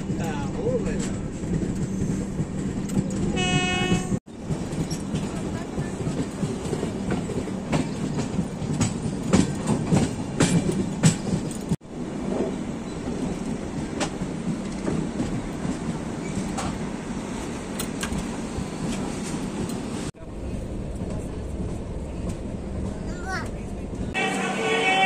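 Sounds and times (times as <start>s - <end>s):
wheels clacking on rails: 0.0s - 24.2s
train rumble and rush: 0.0s - 25.0s.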